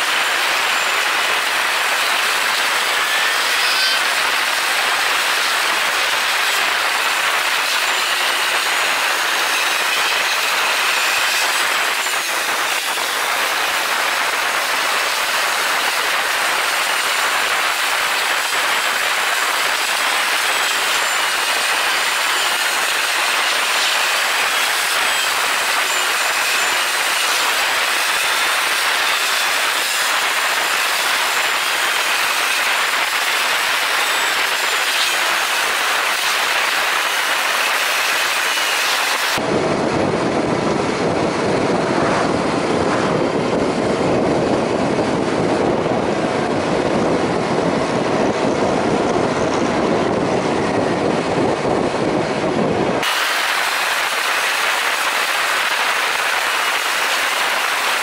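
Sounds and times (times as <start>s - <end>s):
motorcycle engine whine: 0.0s - 17.0s, 38.2s - 53.2s
wind and road noise: 0.0s - 58.0s.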